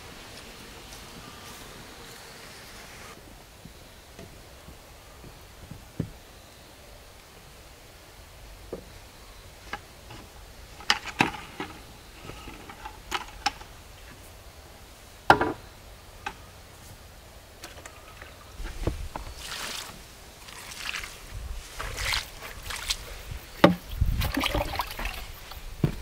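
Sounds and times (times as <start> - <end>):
rustling: 16.7 - 26.0.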